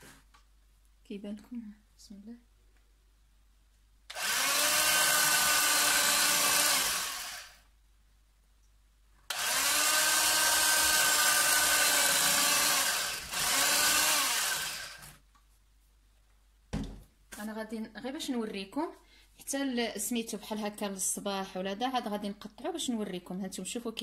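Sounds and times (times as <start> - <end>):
electric carving knife buzzing: 4.1 - 7.6, 9.3 - 15.1.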